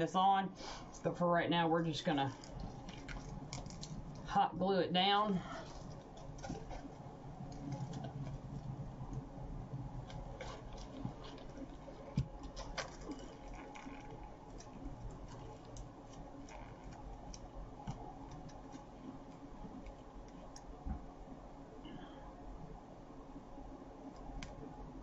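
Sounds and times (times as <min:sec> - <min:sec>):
mesh crinkling: 0:01.8 - 0:20.8.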